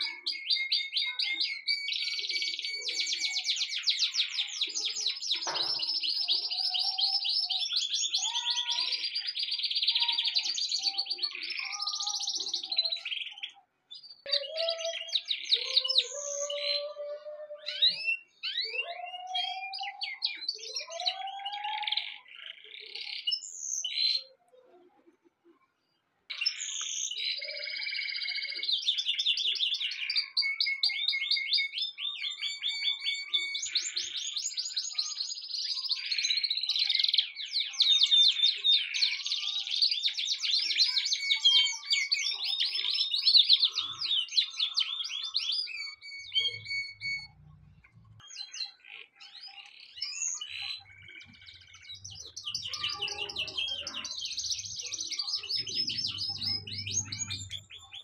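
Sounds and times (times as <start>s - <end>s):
canary singing trills: 0.0s - 25.6s, 26.3s - 58.0s.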